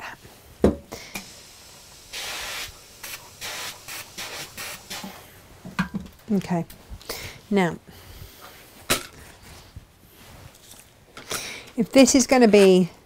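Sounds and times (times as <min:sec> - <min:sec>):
steam iron hissing: 0:01.0 - 0:05.3.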